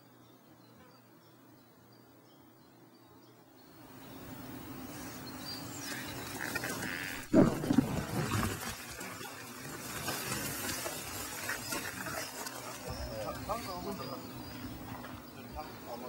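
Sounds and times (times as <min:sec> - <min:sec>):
tall grass rustling: 0:04.6 - 0:15.5
low thump on microphone: 0:07.3 - 0:08.2.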